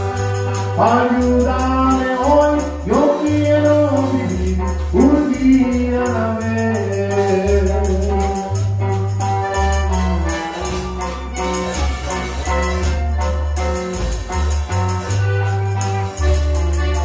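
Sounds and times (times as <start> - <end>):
man singing: 0.0 - 8.9
acoustic guitar: 0.0 - 17.0
electric bass: 0.0 - 17.0.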